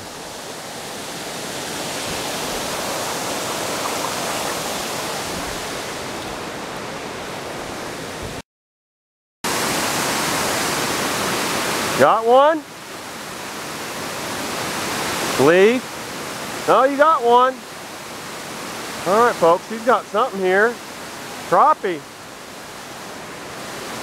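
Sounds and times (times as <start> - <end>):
water pouring over dam spillway: 9.5 - 24.0.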